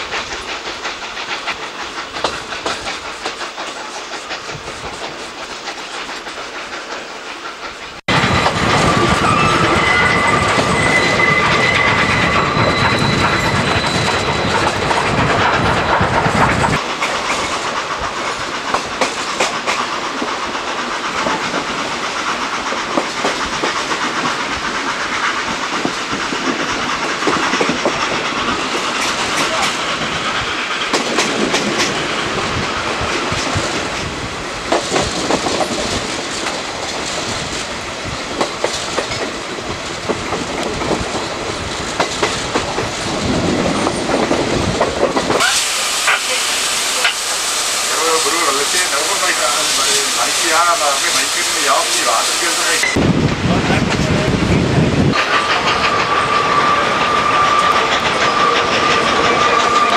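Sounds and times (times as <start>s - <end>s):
train wheels rumbling and clicking: 0.0s - 59.9s
high wheel squeal: 8.1s - 15.7s, 55.1s - 59.9s.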